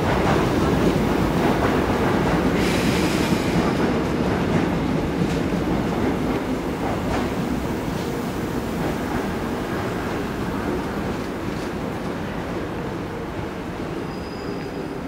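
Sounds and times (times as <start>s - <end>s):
train wheels rumbling on rails: 0.0s - 15.0s
train brake squeal: 14.0s - 15.0s.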